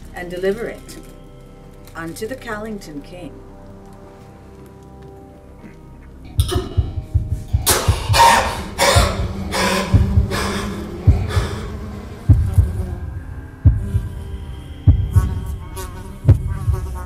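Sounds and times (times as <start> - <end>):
low hum: 5.8 - 17.0
low thuds: 6.3 - 15.6, 16.2 - 17.0
man coughing and gasping: 7.6 - 9.9.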